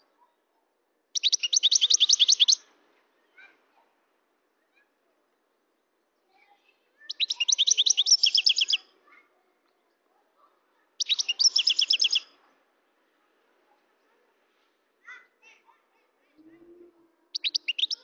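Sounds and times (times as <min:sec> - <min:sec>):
goldfinch singing: 0:01.2 - 0:02.7, 0:07.1 - 0:08.8, 0:11.0 - 0:12.3, 0:17.3 - 0:18.0.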